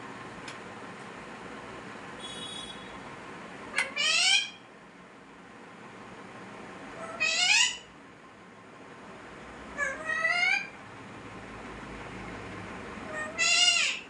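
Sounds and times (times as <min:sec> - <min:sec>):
parrot calling: 0:03.7 - 0:04.6, 0:07.0 - 0:07.9, 0:09.8 - 0:10.8, 0:13.0 - 0:14.0.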